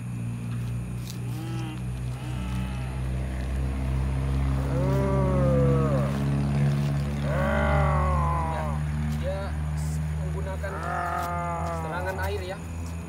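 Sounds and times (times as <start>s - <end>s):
steady low hum: 0.0s - 13.0s
moaning cries: 1.4s - 3.1s, 4.6s - 6.3s, 7.2s - 8.9s, 10.6s - 12.1s.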